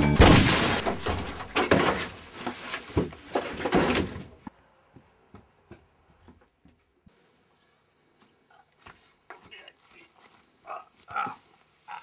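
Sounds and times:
knocks and thuds: 0.2s - 2.2s
rustling: 0.5s - 4.5s.

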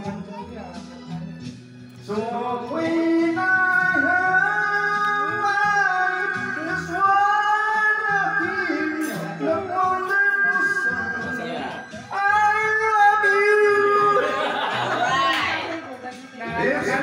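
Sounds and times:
backing track with guitar and bass: 0.0s - 17.0s
man singing a slow ballad: 2.0s - 14.4s.

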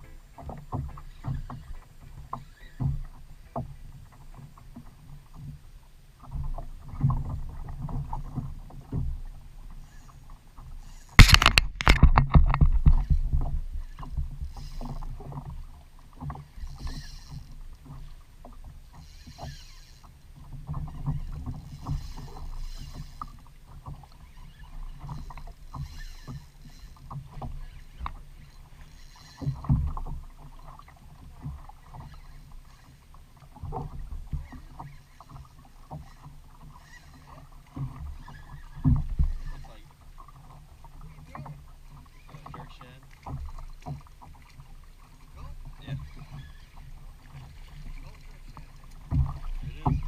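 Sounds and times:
water lapping against plastic hull: 0.0s - 50.0s
small knocks and clicks: 10.9s - 15.6s, 16.2s - 30.8s.

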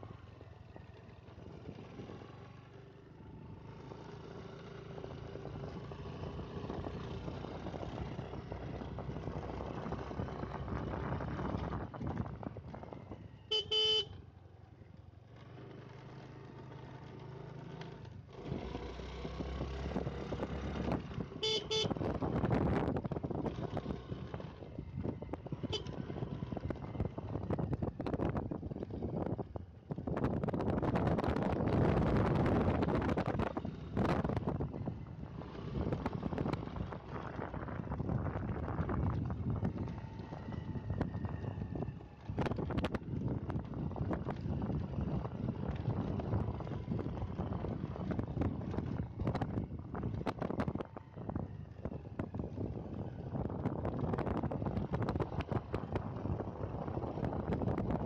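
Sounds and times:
motorcycle engine running: 0.0s - 58.0s
wind rush on microphone: 6.6s - 13.3s, 19.4s - 58.0s
motorcycle horn beeping: 13.5s - 14.2s, 21.4s - 22.0s, 25.6s - 26.0s.

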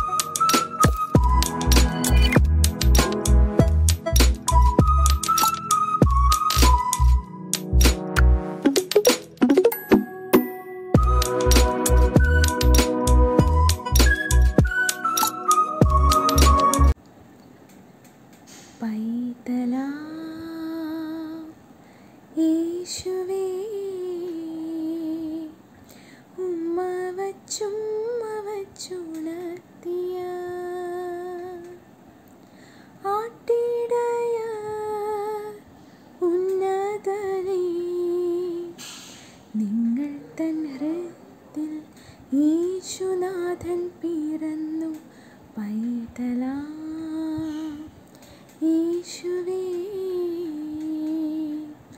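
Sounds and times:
woman singing unaccompanied: 18.8s - 21.6s, 22.3s - 25.7s, 26.4s - 31.9s, 33.0s - 38.8s, 39.5s - 51.9s.

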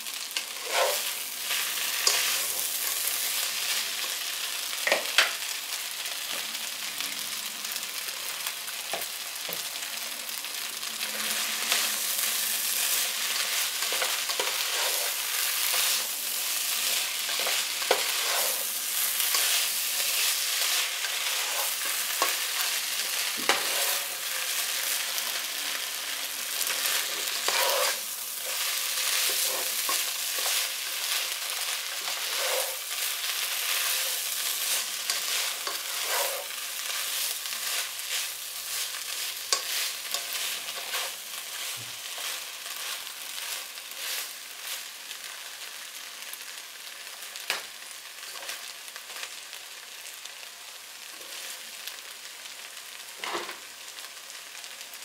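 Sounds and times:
food sizzling in a pot: 0.0s - 55.0s
spatula scraping a pot: 0.4s - 3.0s, 13.4s - 16.1s, 16.8s - 24.3s, 26.6s - 31.2s, 31.9s - 44.3s.

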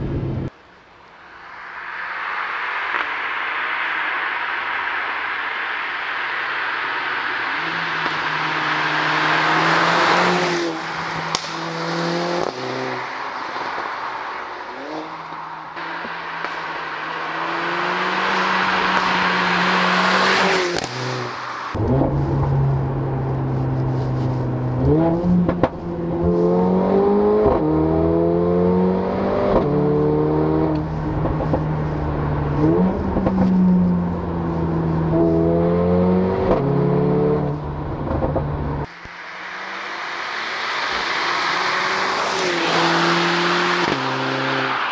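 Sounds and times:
car driving past: 1.2s - 37.7s, 38.8s - 44.9s
car engine accelerating with upshifts: 6.1s - 44.9s.

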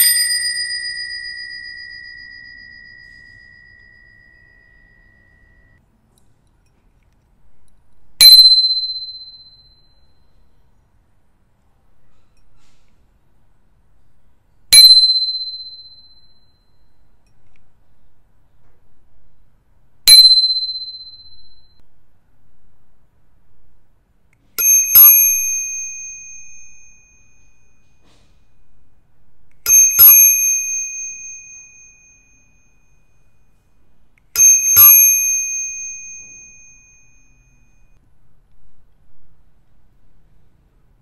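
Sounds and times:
bicycle bell dinging: 0.0s - 5.8s, 8.2s - 10.6s, 14.7s - 17.2s, 20.1s - 21.8s, 24.6s - 28.8s, 29.6s - 38.0s.

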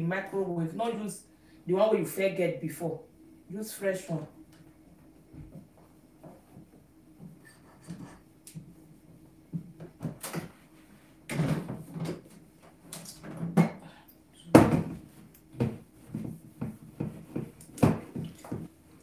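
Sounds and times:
cloth wiping microwave: 14.9s - 19.0s.

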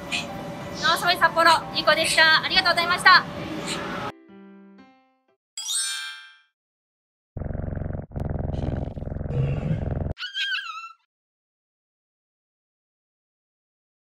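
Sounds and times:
low rumbling roar: 7.4s - 10.2s.

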